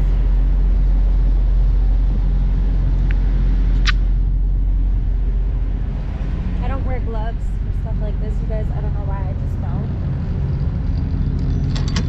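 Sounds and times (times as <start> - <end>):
diesel truck engines idling: 0.0 - 12.0.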